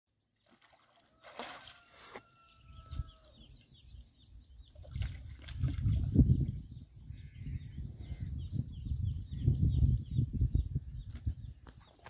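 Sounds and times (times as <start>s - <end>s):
distant bird call: 1.0s - 3.9s.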